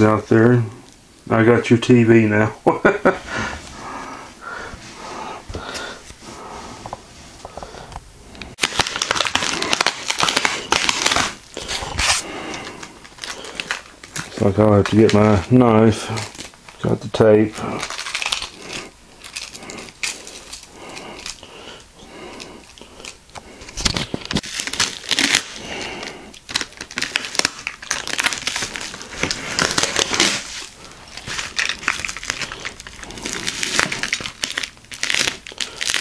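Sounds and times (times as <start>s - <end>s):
bubble wrap crinkling: 8.5s - 36.0s.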